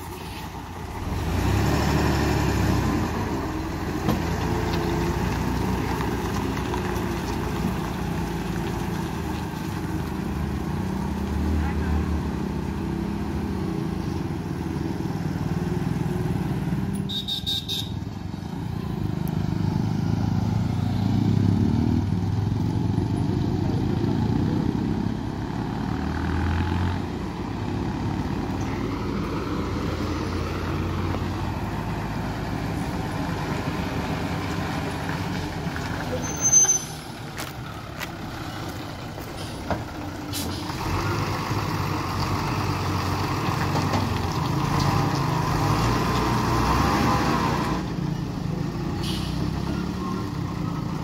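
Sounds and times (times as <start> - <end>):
lorry diesel engine labouring: 0.0 - 51.0.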